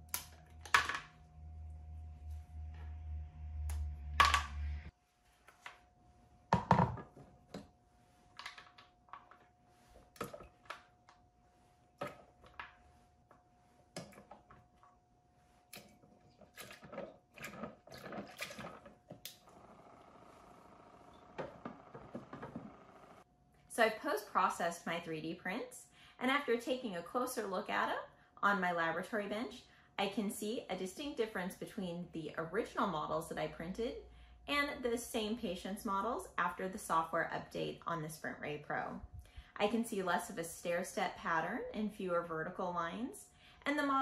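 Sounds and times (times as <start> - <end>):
low machine hum: 0.0 - 4.9, 11.3 - 23.2.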